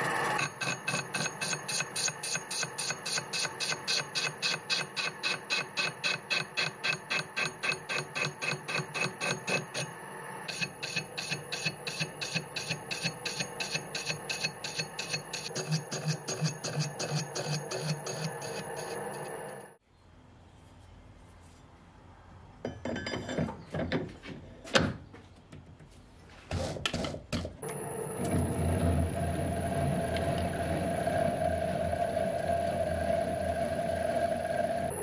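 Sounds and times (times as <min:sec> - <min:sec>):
high machine whine: 0:00.0 - 0:19.8, 0:27.6 - 0:35.0.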